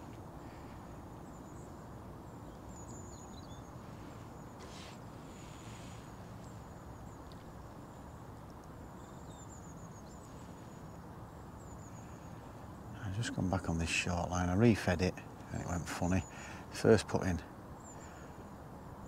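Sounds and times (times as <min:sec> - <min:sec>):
low rumble of wind: 0:00.0 - 0:19.0
soft rustles: 0:03.9 - 0:06.6.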